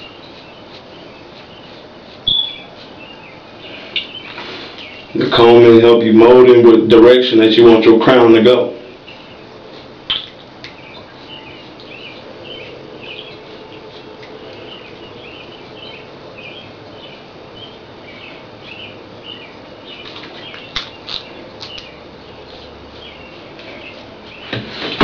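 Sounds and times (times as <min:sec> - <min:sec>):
comb rasping through wet hair: 0:00.0 - 0:03.2.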